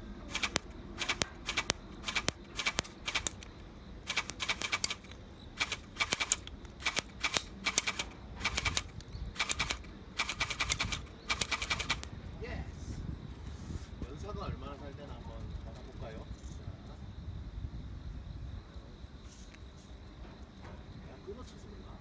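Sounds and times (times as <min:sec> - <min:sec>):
airsoft gun firing bursts: 0:00.3 - 0:12.1.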